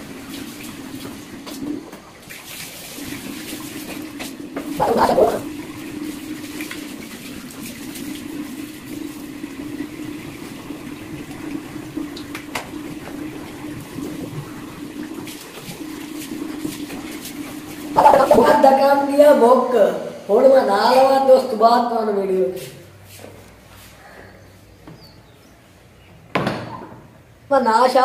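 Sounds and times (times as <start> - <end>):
water splashes: 0.0 - 20.1
tap running into sink: 3.0 - 4.8, 11.1 - 17.8.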